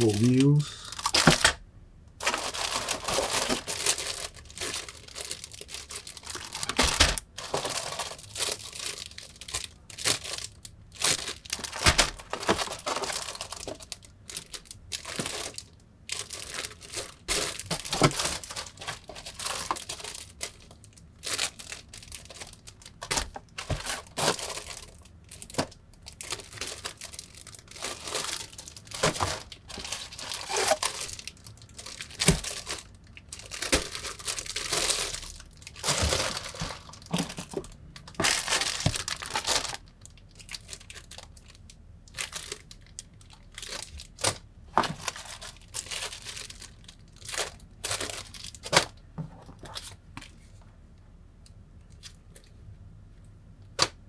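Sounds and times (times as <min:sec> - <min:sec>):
plastic bags crinkling: 0:00.0 - 0:01.6, 0:02.2 - 0:50.0.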